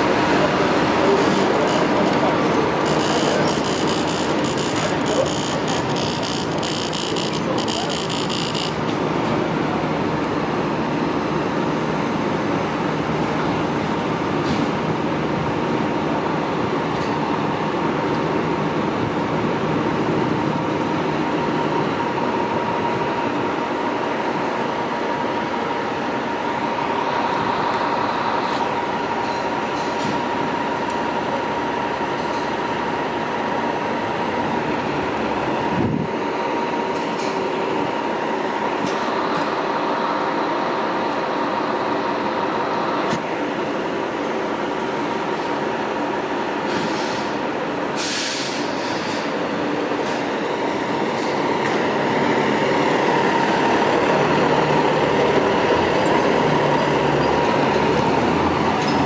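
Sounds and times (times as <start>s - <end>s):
diesel engine drone: 0.0s - 59.0s
constant high whine: 0.4s - 14.3s.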